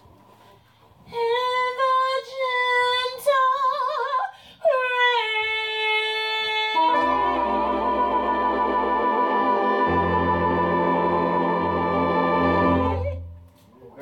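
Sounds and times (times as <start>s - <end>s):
woman singing with vibrato: 1.1s - 13.4s
band sustained chord: 6.9s - 13.3s.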